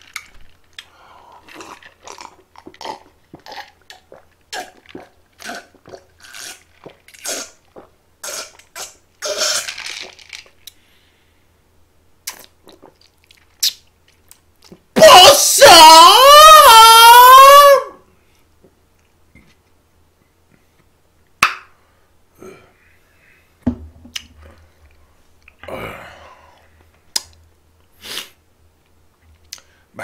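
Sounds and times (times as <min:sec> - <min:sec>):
person gulping drink: 0:00.1 - 0:10.8, 0:12.2 - 0:14.8
mouth clicks: 0:12.2 - 0:14.8.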